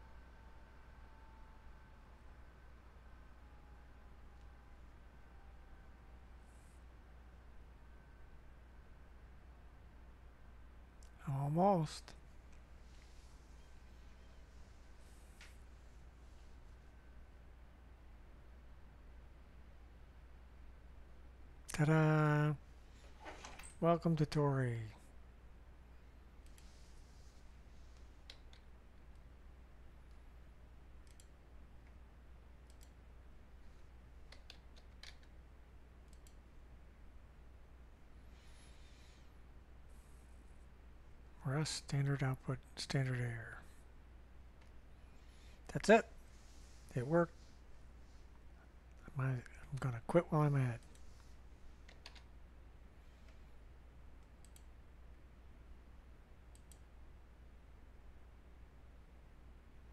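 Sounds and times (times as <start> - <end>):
low steady hum: 0.0 - 59.9
computer mouse clicks: 26.4 - 26.8, 27.9 - 29.3, 31.0 - 32.0, 32.6 - 33.0, 34.2 - 35.4, 36.0 - 36.4, 50.8 - 52.3, 54.2 - 54.7, 56.5 - 56.9
keyboard keystrokes: 34.3 - 35.3, 51.9 - 52.2.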